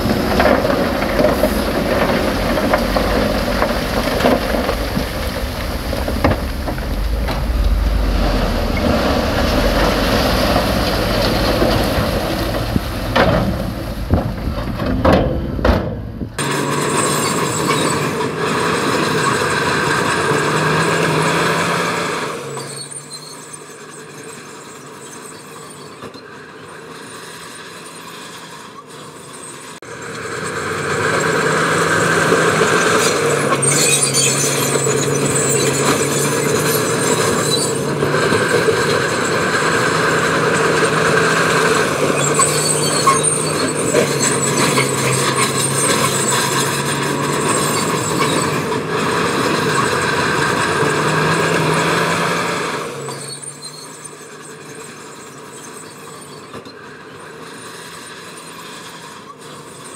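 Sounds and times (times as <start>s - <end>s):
gritty rattling: 0.0s - 16.4s
heavy diesel engine under load: 0.0s - 59.9s.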